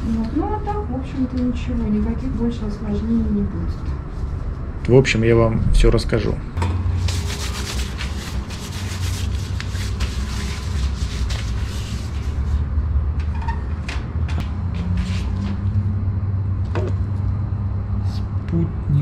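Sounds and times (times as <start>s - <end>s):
steady low rumble: 0.0s - 19.0s
plastic gloves rustling: 7.0s - 12.7s.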